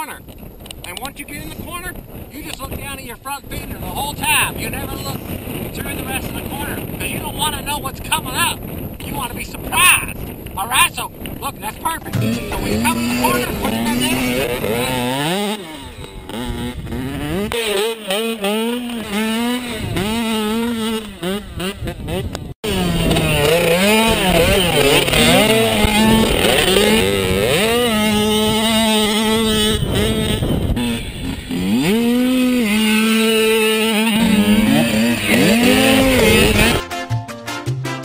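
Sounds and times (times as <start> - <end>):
dirt bike engine revving: 10.2 - 36.9.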